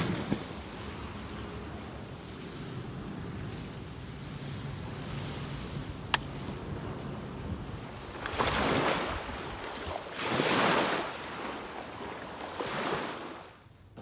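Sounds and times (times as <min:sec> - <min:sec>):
sea waves washing in: 0:00.0 - 0:13.7.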